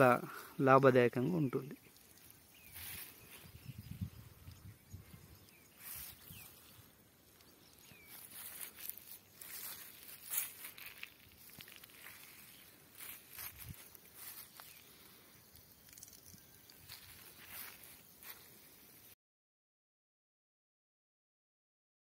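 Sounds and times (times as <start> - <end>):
vegetation rustling: 1.9 - 4.1, 5.0 - 19.0
footsteps in dry grass: 1.9 - 19.1.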